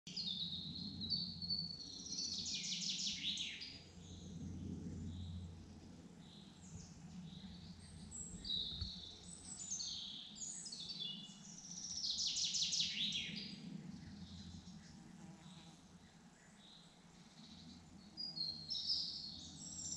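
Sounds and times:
low steady hum: 0:03.6 - 0:12.1
birds singing and chirping: 0:06.3 - 0:19.9.

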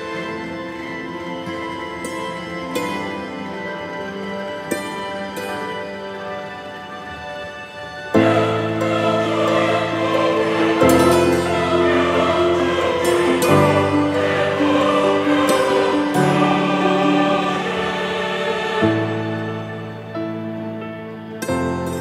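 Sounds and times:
slow held chords: 0:08.2 - 0:21.0.

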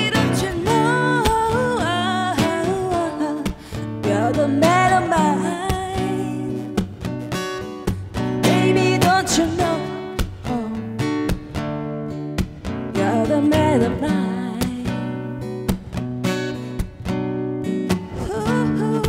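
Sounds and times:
blues guitar lead lines: 0:00.0 - 0:19.0.

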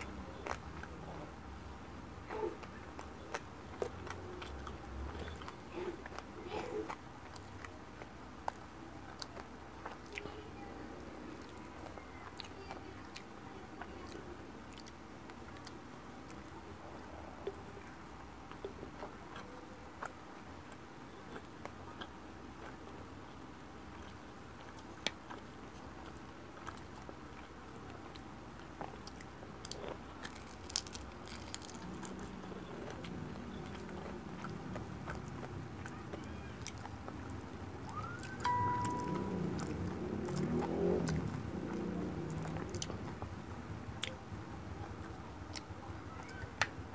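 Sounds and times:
person chewing crispy fish: 0:00.0 - 0:10.5, 0:23.9 - 0:46.6
crispy fish crackling: 0:29.2 - 0:38.4.

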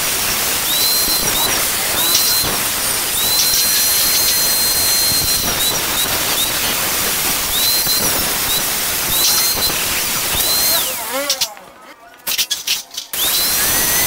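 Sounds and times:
angle grinder cutting metal: 0:00.0 - 0:11.7, 0:12.3 - 0:14.0.

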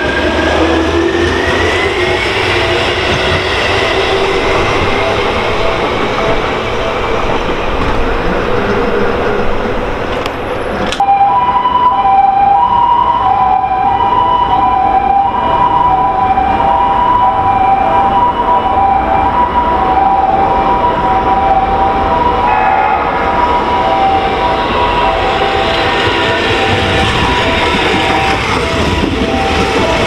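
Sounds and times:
train running on track: 0:00.0 - 0:30.0.

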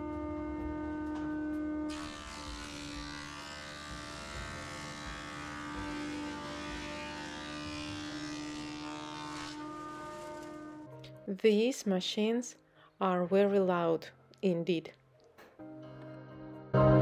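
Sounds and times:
planer motor hum: 0:00.0 - 0:10.9.

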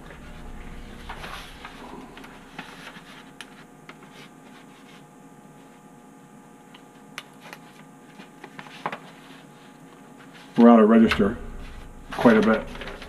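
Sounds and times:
newspaper rustling: 0:01.0 - 0:05.1, 0:07.3 - 0:10.5, 0:12.2 - 0:13.0.

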